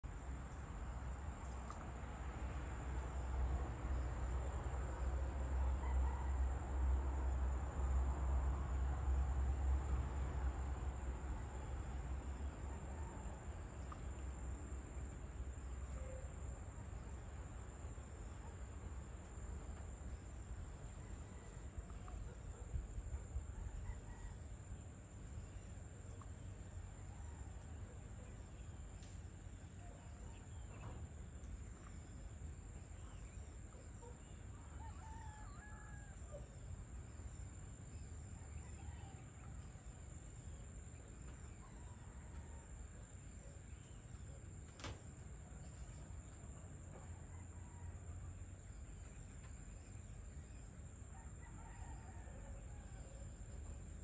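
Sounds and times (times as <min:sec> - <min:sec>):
distant chickens and birds chirping: 0:00.1 - 0:54.0.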